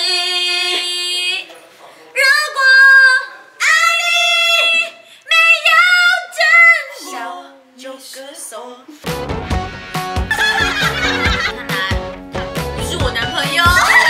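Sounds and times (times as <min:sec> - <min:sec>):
women singing unaccompanied: 0:00.0 - 0:01.5.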